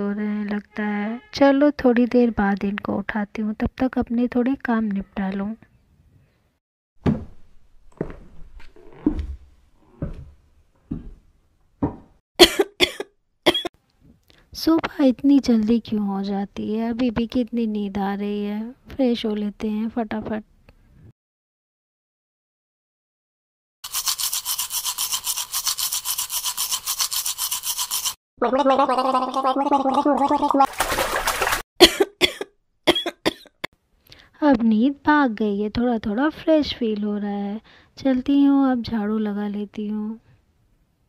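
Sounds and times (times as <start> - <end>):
person coughing: 12.4 - 13.7, 31.8 - 33.7
toothbrush scrubbing teeth: 23.8 - 28.2.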